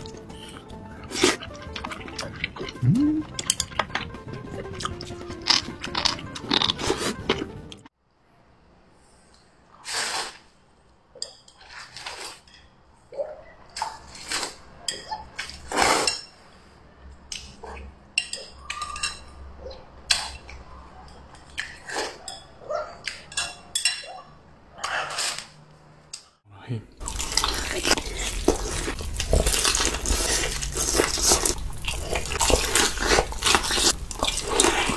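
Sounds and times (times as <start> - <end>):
person slurping and chewing noodles: 0.1 - 7.9, 27.0 - 34.9.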